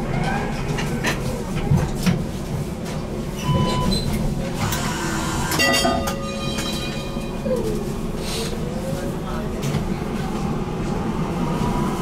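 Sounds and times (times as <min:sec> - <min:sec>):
tram rumbling on track: 0:00.0 - 0:12.0
short beeps: 0:03.4 - 0:04.0.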